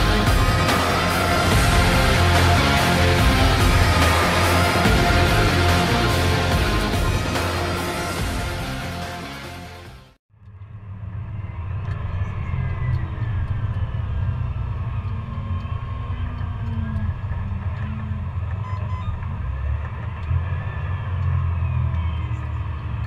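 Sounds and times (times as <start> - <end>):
combine harvester drone: 0.0 - 23.0
faint whines shifting in pitch: 10.4 - 23.0.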